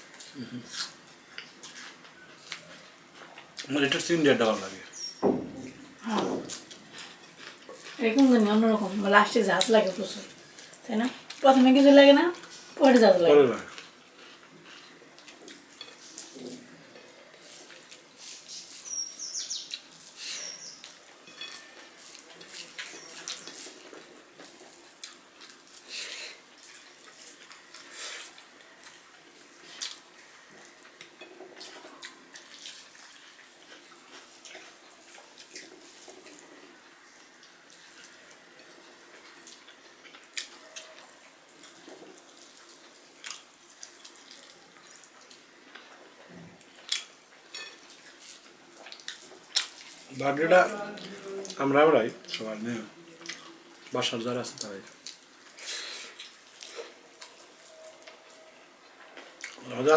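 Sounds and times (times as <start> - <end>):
hands squishing rice: 6.5 - 36.4
chewing and lip smacks: 13.7 - 19.0, 19.7 - 36.6, 37.4 - 46.0, 46.6 - 50.1, 53.1 - 54.0, 54.8 - 58.4, 59.2 - 59.7.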